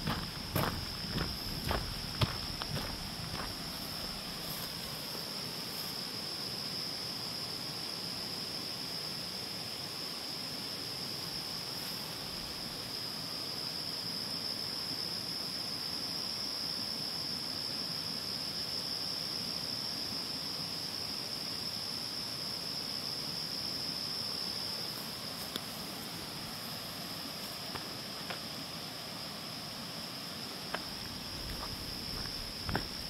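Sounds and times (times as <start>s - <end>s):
insects droning: 0.0s - 33.0s
soft hiss: 24.5s - 33.0s
faint ticks: 25.4s - 25.7s.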